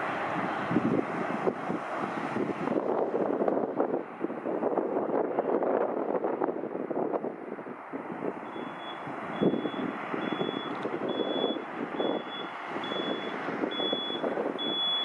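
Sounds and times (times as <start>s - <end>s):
jet engines rumbling: 0.0s - 15.0s
reversing beeper: 8.5s - 15.0s.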